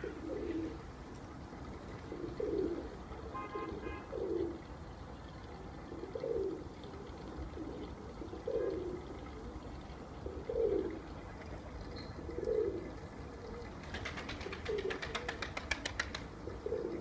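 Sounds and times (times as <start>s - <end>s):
pigeons cooing: 0.0s - 0.8s, 1.7s - 4.7s, 5.8s - 17.0s
pigeon wings flapping: 13.8s - 16.3s.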